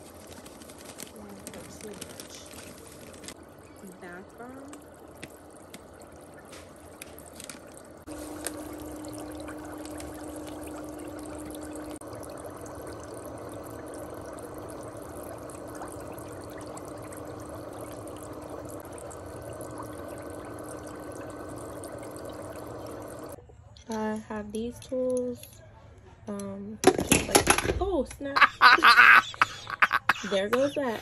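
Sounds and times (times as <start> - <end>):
foot bath motor hum: 0.0 - 23.4, 28.4 - 30.7
water splashes: 0.0 - 23.4
water bubbling: 0.1 - 23.4.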